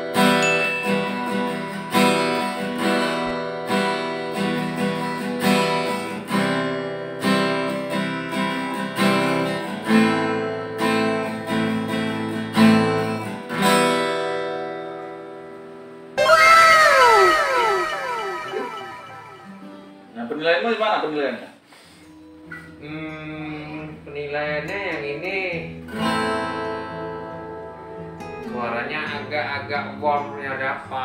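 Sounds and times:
acoustic guitar strummed chords: 16.2s - 20.1s.

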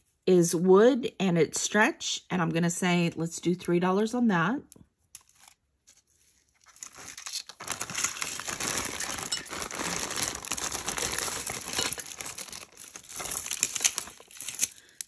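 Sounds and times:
packaging crinkling: 5.2s - 15.0s
beads and metal pieces clinking: 6.7s - 15.0s.

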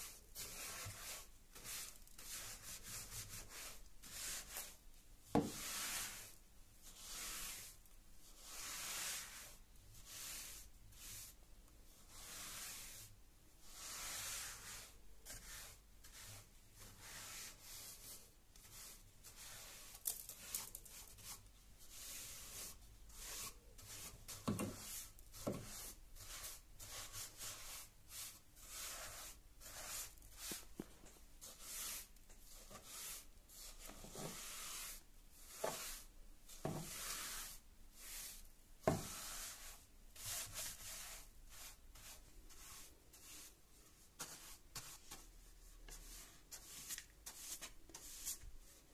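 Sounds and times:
paint brush swishing on stair: 0.0s - 4.8s, 8.4s - 11.4s, 13.6s - 43.6s, 44.2s - 48.8s.

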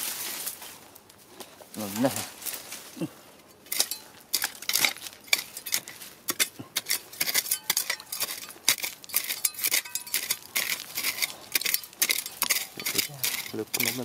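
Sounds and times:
hoe scraping stony soil: 3.6s - 14.0s.

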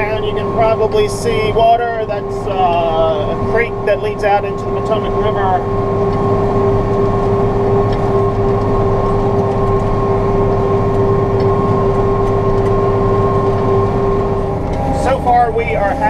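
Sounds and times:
steady high whine: 0.0s - 16.0s
tractor engine drone: 0.0s - 16.0s.

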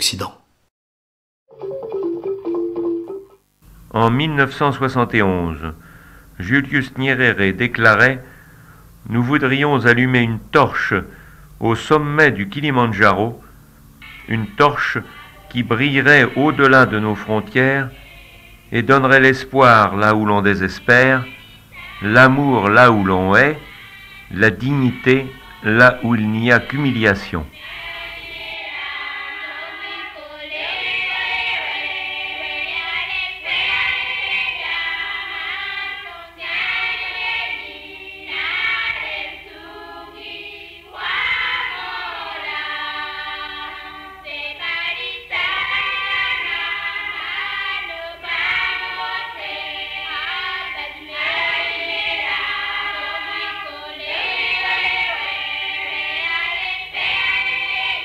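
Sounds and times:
choir singing: 14.0s - 58.0s.

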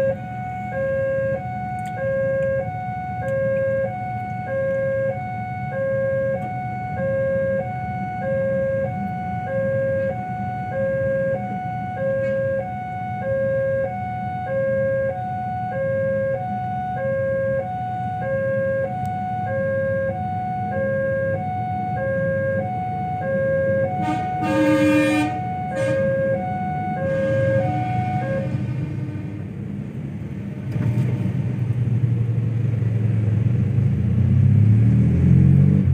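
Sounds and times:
level-crossing two-tone alarm: 0.0s - 28.8s
road traffic: 0.0s - 35.9s
train horn blast: 23.8s - 29.7s
train rumble: 23.9s - 34.2s.

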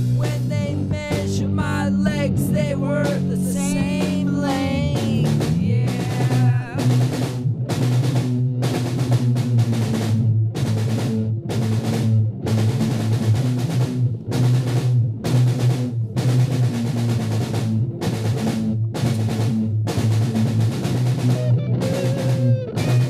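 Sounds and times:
sustained low notes: 0.0s - 7.7s
hard drum hits: 0.0s - 10.2s, 12.6s - 23.0s
heavy rock song: 0.0s - 23.0s.

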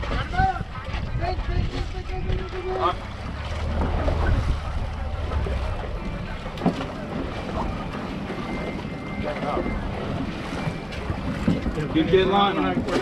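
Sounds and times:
wind on microphone: 0.0s - 6.2s
outboard motor humming: 0.0s - 13.0s
water noise: 0.0s - 13.0s.

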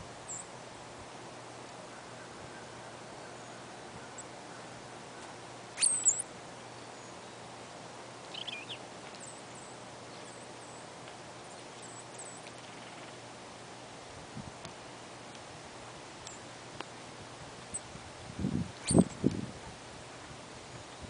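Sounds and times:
songbirds calling: 0.2s - 0.6s, 1.5s - 13.4s, 16.2s - 16.6s, 18.7s - 19.4s.

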